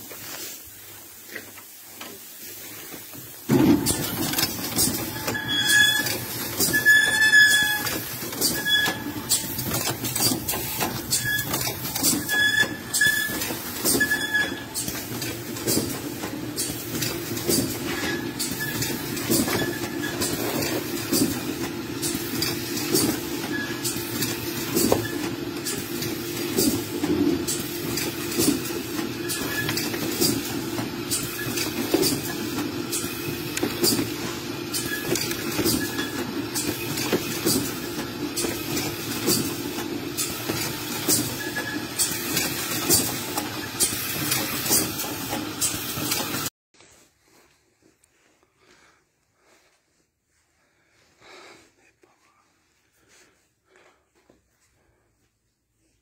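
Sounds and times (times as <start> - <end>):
machine mechanical hum: 0.8 - 46.5
machine clicking and clacking: 3.5 - 46.5.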